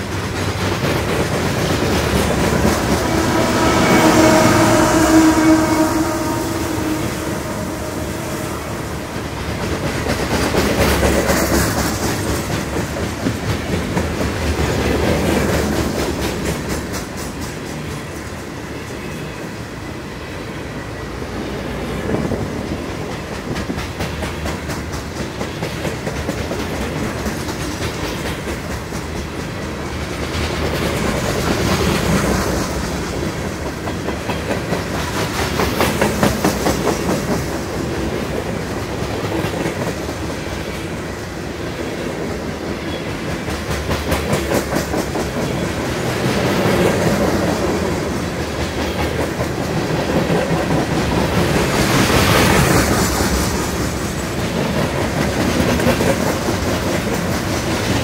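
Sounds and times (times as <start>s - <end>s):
diesel locomotive humming: 0.0s - 26.1s
freight train rumbling past: 0.0s - 58.0s.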